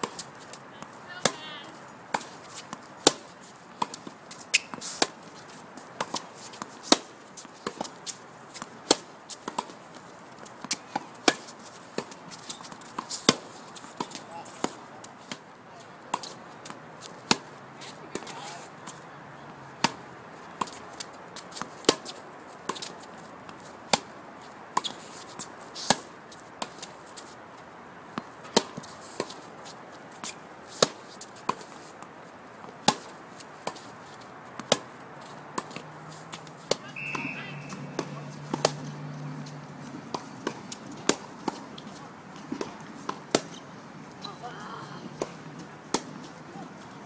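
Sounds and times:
tennis balls struck by rackets: 0:00.0 - 0:27.3, 0:28.1 - 0:47.0
balls bouncing on hard court: 0:36.7 - 0:43.6.

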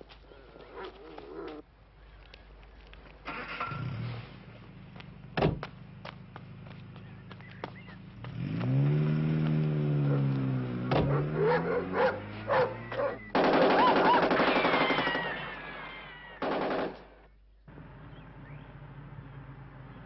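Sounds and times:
car engine revving: 0:06.5 - 0:13.4
automatic gunfire: 0:13.3 - 0:15.3, 0:16.4 - 0:17.2.

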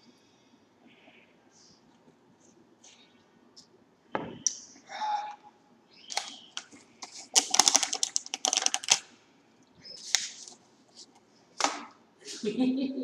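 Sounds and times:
chips rattling in a can: 0:07.0 - 0:09.1.

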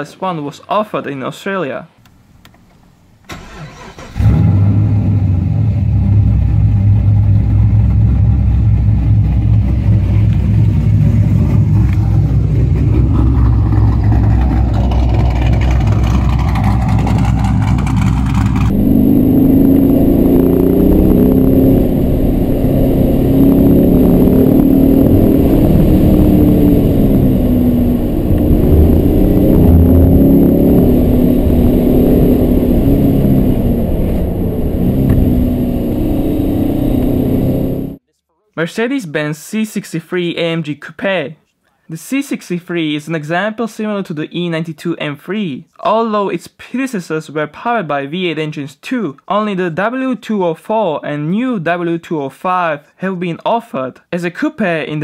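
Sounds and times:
car engine starting and running: 0:02.1 - 0:38.0
car accelerating through gears: 0:03.3 - 0:38.0.

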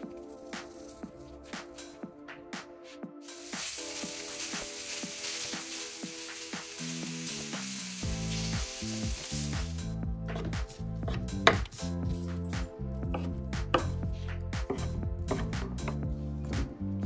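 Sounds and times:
chicken sizzling on a griddle: 0:03.3 - 0:09.8.

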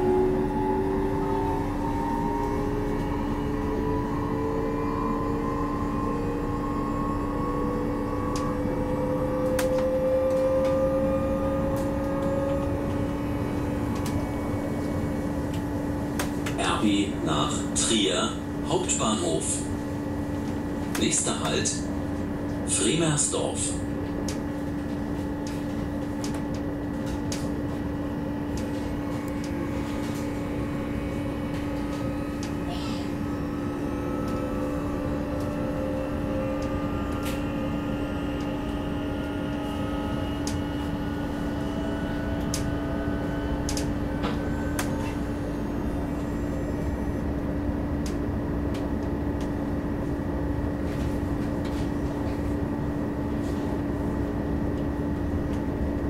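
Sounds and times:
constant hum: 0:00.0 - 0:56.0
faint whining tones: 0:00.0 - 0:56.0
train interior rumble: 0:00.0 - 0:56.0.

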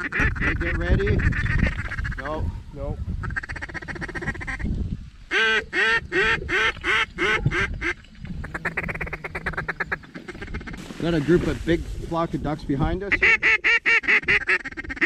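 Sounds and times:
duck quacking: 0:00.0 - 0:02.4, 0:03.2 - 0:04.7, 0:05.3 - 0:10.8, 0:13.1 - 0:15.0.

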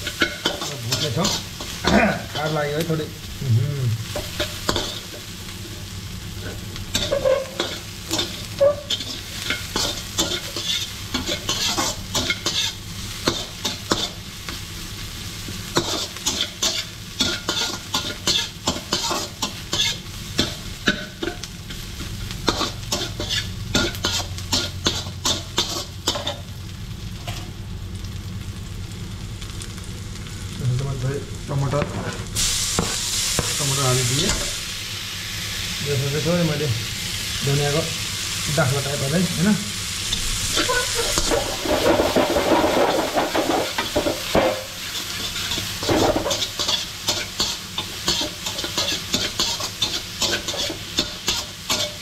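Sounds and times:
metal spatula scraping a pan: 0:00.0 - 0:02.6, 0:06.4 - 0:14.2, 0:15.8 - 0:21.8, 0:22.5 - 0:26.4, 0:40.5 - 0:52.0
onions sizzling in hot oil: 0:00.0 - 0:52.0.

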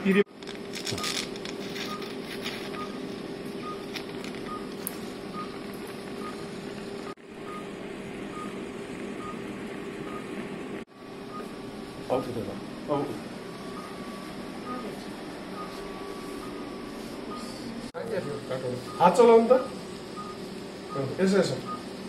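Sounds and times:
equipment hum: 0:00.0 - 0:22.0
patient monitor beeping: 0:01.8 - 0:06.4, 0:07.5 - 0:07.7, 0:08.3 - 0:08.6, 0:09.2 - 0:09.4, 0:10.0 - 0:10.4, 0:11.3 - 0:21.9.

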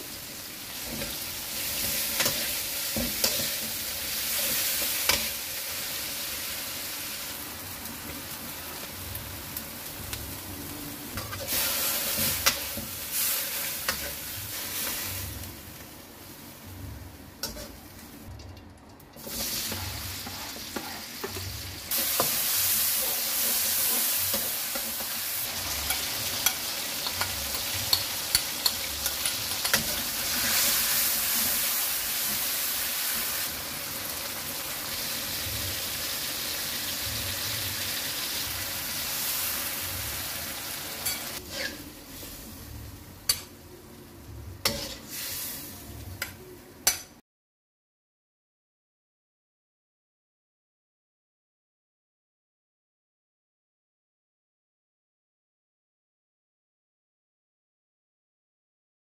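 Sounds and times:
food sizzling in a wok: 0:00.0 - 0:18.3, 0:19.2 - 0:46.9
metal spatula scraping a pan: 0:00.8 - 0:05.4, 0:11.2 - 0:15.3, 0:17.4 - 0:17.9, 0:19.2 - 0:32.4, 0:39.9 - 0:42.5, 0:44.6 - 0:45.7.

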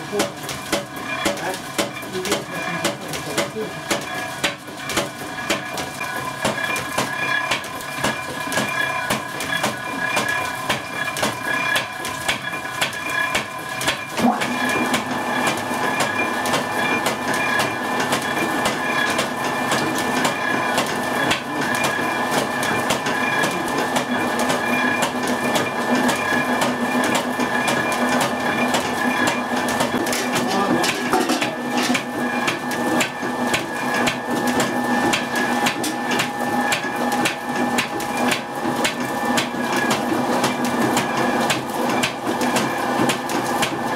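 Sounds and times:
machine hum: 0:00.0 - 0:43.9.

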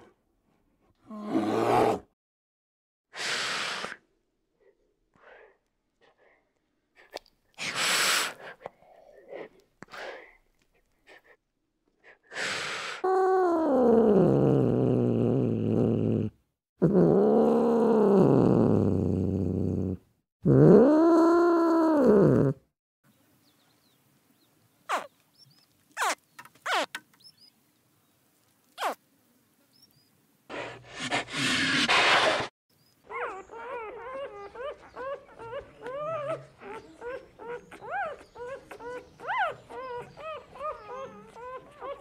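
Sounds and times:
cat hissing: 0:07.6 - 0:08.6, 0:30.5 - 0:32.5.

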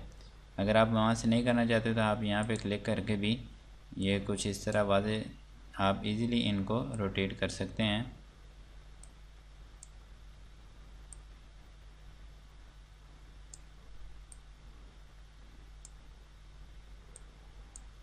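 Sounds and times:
low steady hum: 0:00.0 - 0:18.0
computer mouse clicking: 0:11.1 - 0:11.3, 0:13.5 - 0:13.7, 0:15.8 - 0:16.0, 0:17.1 - 0:18.0.

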